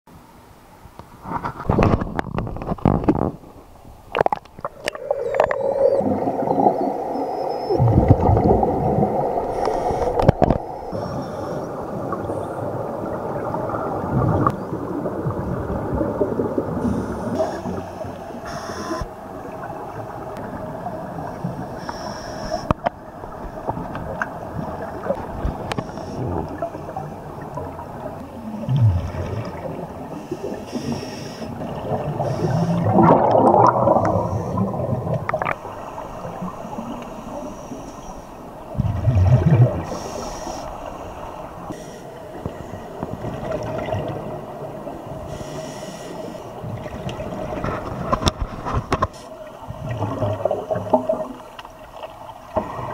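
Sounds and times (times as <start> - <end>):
steady underwater hum: 0.1 - 52.9
regulator bubbles bursting: 4.1 - 10.8, 31.6 - 35.7, 38.7 - 39.8.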